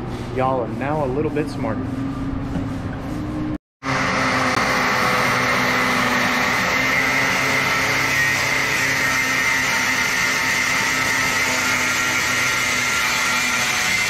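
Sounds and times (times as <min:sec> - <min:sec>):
angle grinder cutting metal tubing: 0:03.8 - 0:14.0.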